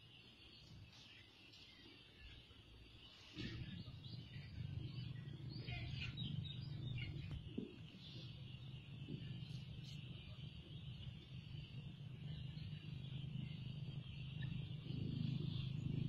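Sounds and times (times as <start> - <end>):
steady high-pitched hiss: 0.0 - 5.5
birds chirping: 0.0 - 16.0
low steady rumble: 0.0 - 16.0.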